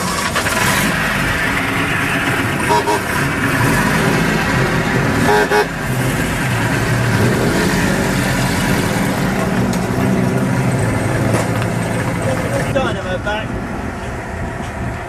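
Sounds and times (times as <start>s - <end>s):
car engine running at low revs: 0.0s - 15.0s
brief toot-like tone: 2.7s - 3.0s.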